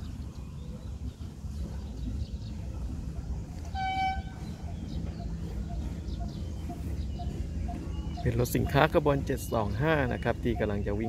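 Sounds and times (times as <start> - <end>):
low steady rumble: 0.0 - 11.0
locomotive horn toot: 3.6 - 4.6.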